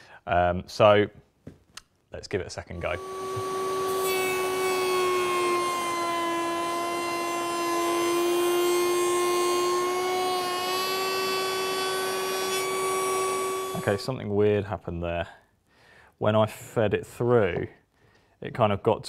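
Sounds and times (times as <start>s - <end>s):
router whining cutting wood: 2.7s - 14.1s.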